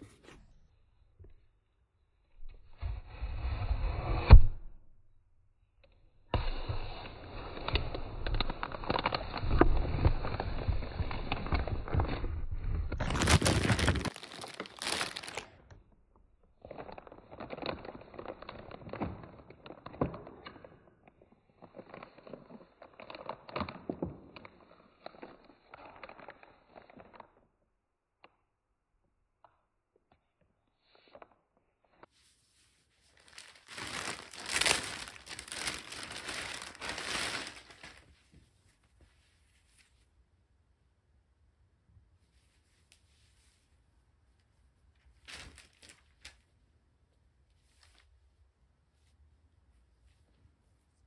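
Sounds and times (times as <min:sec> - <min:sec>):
plastic bag crinkling: 0:07.9 - 0:15.6, 0:16.6 - 0:20.3, 0:21.5 - 0:27.2, 0:33.1 - 0:38.2, 0:45.2 - 0:46.4.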